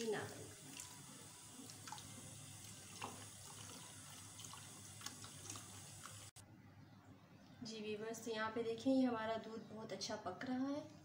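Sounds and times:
liquid trickling into a pot: 0:00.0 - 0:06.4.

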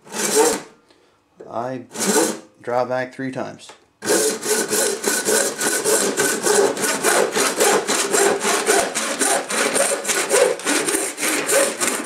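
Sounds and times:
handsaw cutting plastic pipe: 0:00.0 - 0:00.7, 0:01.9 - 0:02.4, 0:04.0 - 0:12.0.

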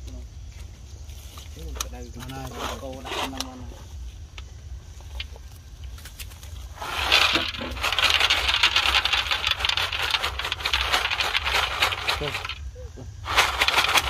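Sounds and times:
peanuts rattling on metal tray: 0:06.7 - 0:14.0.

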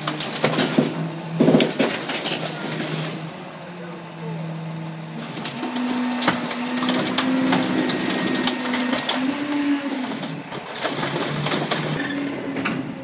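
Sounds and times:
car body cracking and crunching: 0:00.0 - 0:03.2, 0:05.2 - 0:12.0
garbage truck packer droning: 0:00.0 - 0:13.0.

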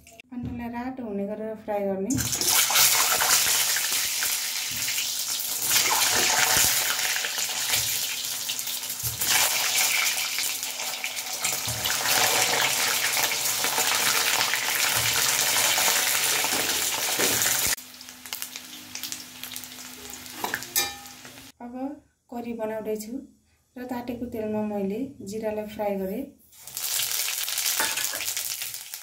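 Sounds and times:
hot oil sizzling: 0:02.2 - 0:21.6, 0:26.5 - 0:29.0.

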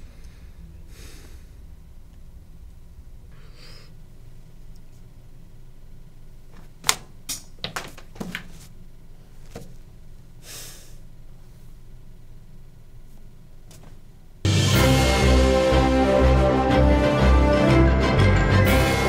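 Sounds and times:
breathy exhales: 0:00.0 - 0:01.8, 0:03.3 - 0:04.0, 0:10.4 - 0:11.1.

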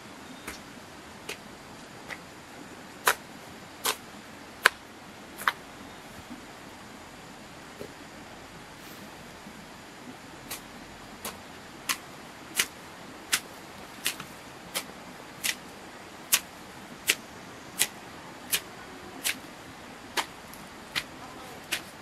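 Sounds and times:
faint background hiss: 0:00.0 - 0:22.0.

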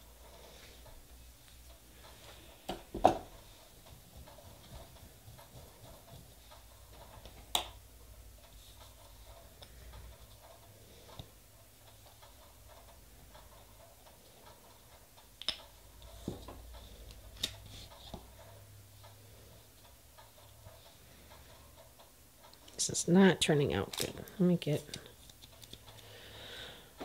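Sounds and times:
small tools clicking and tapping: 0:08.4 - 0:22.8, 0:23.7 - 0:27.0.

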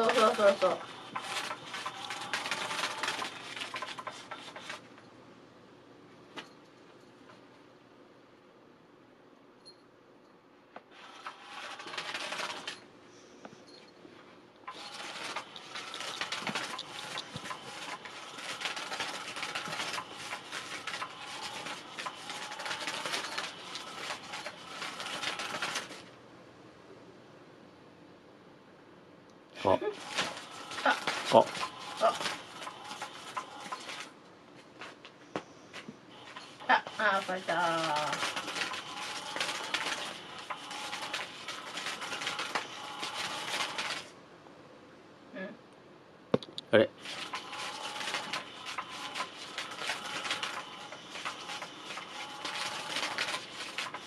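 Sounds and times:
toy motor whirring: 0:00.0 - 0:04.8, 0:14.7 - 0:26.0, 0:30.0 - 0:34.1, 0:36.3 - 0:44.1, 0:47.0 - 0:54.0.

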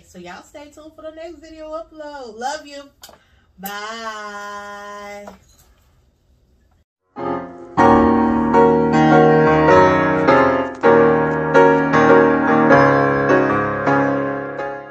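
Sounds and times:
piano chords: 0:07.0 - 0:14.9.

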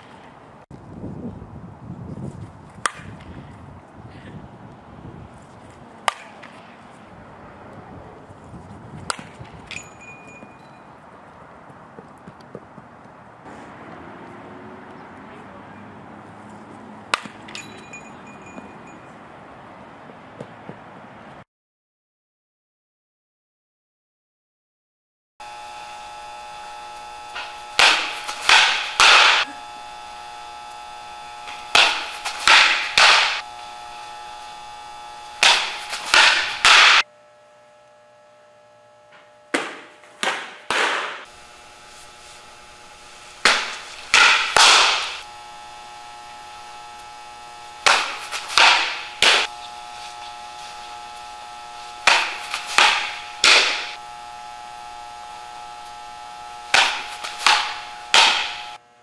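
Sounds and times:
ball slapping into mitt: 0:02.8 - 0:03.2, 0:06.0 - 0:06.6, 0:17.1 - 0:17.4, 0:39.6 - 0:41.2, 0:52.1 - 0:53.9
steady hum: 0:25.4 - 0:59.0.

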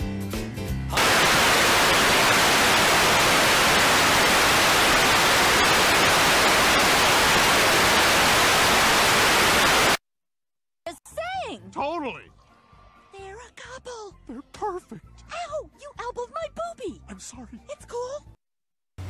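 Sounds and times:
television static hiss: 0:01.0 - 0:10.0.

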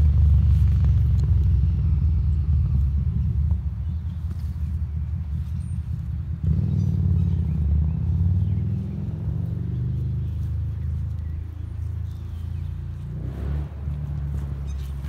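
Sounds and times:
low engine rumble: 0:00.0 - 0:15.0.

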